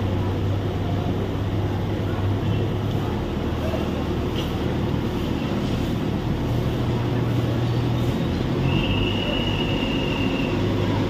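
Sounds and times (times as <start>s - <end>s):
construction machinery engine running: 0.0s - 11.0s.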